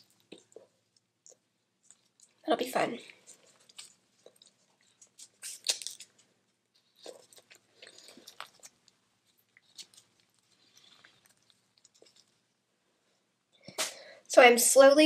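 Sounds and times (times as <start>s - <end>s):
chewing and crunching shells: 3.1s - 12.6s.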